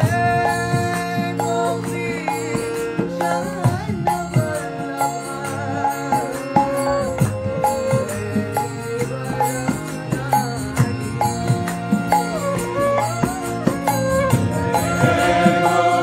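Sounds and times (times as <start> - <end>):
harmonium chords: 0.0 - 16.0
hand drum strokes: 5.9 - 16.0.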